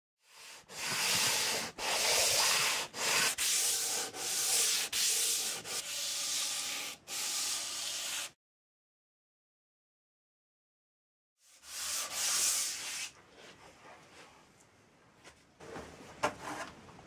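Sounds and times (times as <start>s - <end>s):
hand tool rubbing wood: 0.4s - 8.3s.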